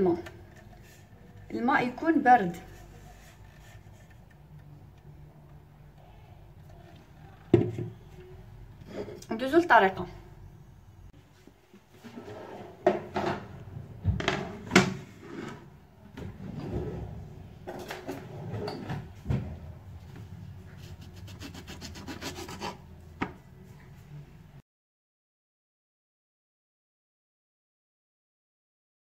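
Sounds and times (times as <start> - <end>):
knife sawing through orange: 20.8 - 22.8.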